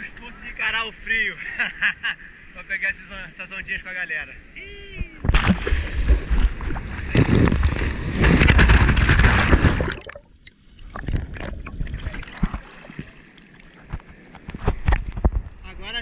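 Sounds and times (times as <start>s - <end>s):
sea water churning and splashing: 5.2s - 14.8s
water lapping: 5.4s - 14.6s.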